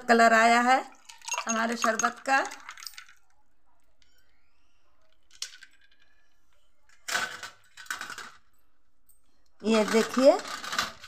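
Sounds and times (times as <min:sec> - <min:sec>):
glassware clinking on steel tray: 0:01.1 - 0:03.1.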